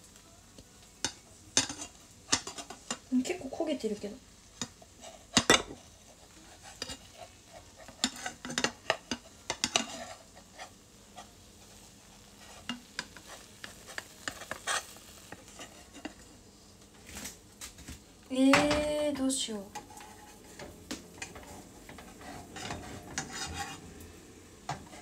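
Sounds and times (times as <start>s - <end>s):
faint sizzling: 0.0s - 25.0s
utensil scraping a frying pan: 1.0s - 3.6s, 4.6s - 16.4s, 19.7s - 24.0s, 24.6s - 25.0s.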